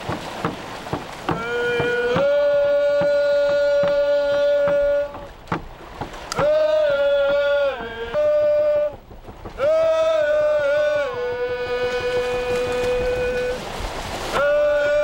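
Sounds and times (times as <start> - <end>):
steady drum or paddle beat: 0.0 - 15.0
voices singing a chant: 1.3 - 5.4, 6.3 - 9.0, 9.6 - 13.7, 14.3 - 15.0.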